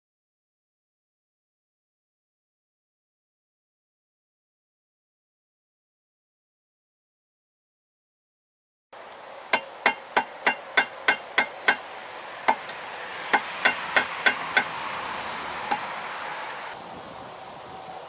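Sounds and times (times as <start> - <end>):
rubber mallet striking metal: 9.5 - 11.9, 13.3 - 14.7.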